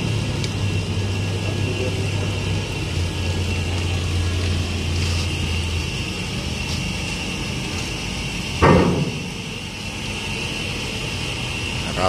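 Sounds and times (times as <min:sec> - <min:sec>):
mechanical hum with high whine: 0:00.0 - 0:12.0
loud metal clank: 0:08.6 - 0:09.5.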